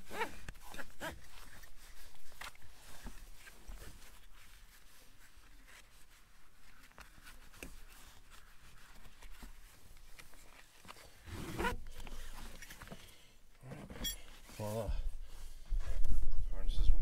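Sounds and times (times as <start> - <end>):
nylon webbing rustling: 0.0 - 16.3
strap sliding through buckle: 10.1 - 12.9.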